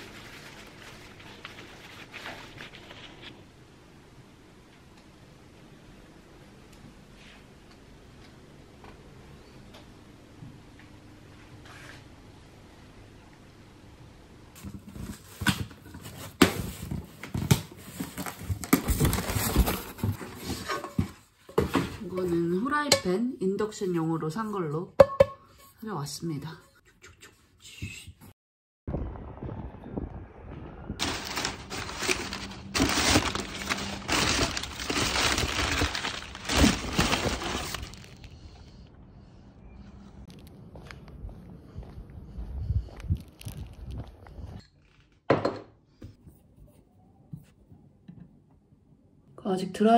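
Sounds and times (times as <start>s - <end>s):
rummaging through recycling bin: 0.0s - 3.4s, 14.6s - 22.7s, 31.0s - 38.4s
crumpled paper rustling: 0.0s - 3.5s, 14.6s - 21.1s, 31.0s - 38.6s
cardboard boxes knocking and scraping: 14.6s - 22.1s.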